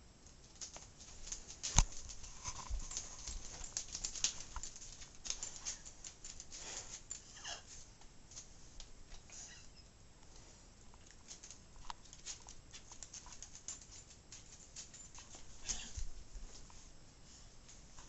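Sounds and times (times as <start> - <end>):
faint clicks and taps: 0.2 - 7.2, 10.2 - 16.8.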